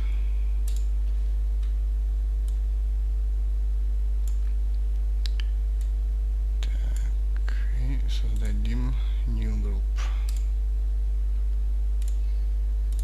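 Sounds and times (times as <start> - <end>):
low electrical hum: 0.0 - 13.0
computer mouse clicks: 0.6 - 0.9, 10.2 - 10.5, 12.0 - 12.2.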